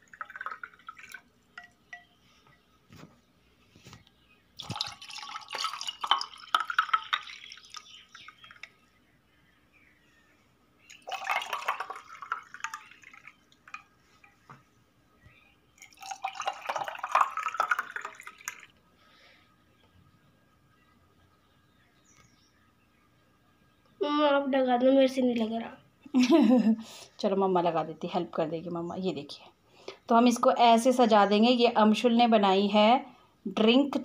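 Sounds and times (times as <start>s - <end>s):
liquid pouring over ice: 0.0s - 1.7s, 4.6s - 8.7s, 10.9s - 13.8s, 15.8s - 18.8s
ice ticking against glass: 4.6s - 8.7s, 10.9s - 14.4s.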